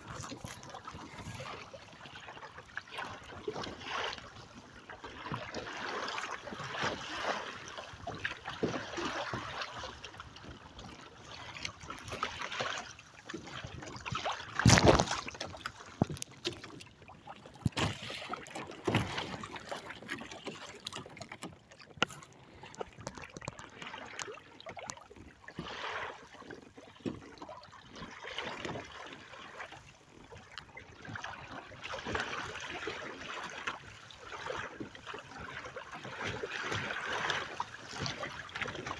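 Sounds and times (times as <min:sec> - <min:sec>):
water splashing along hull: 0:00.0 - 0:38.9
loud splash: 0:14.5 - 0:15.4.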